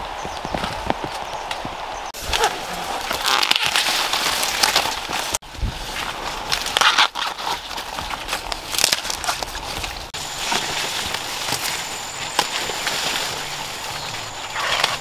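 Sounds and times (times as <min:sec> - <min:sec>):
maize leaves rustling: 0:00.0 - 0:15.0
corn ears snapping off stalks: 0:02.3 - 0:05.4, 0:06.0 - 0:13.5.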